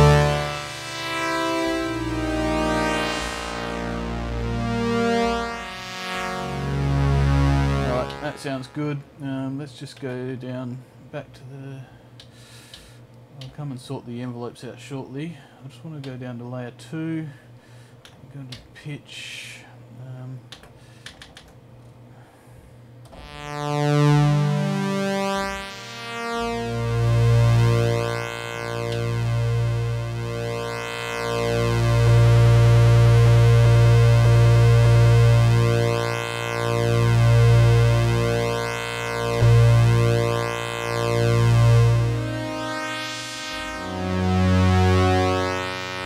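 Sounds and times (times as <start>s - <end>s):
synthesizer chords: 0.0s - 9.3s, 23.1s - 46.0s
low bass note: 0.0s - 9.6s, 23.1s - 46.0s.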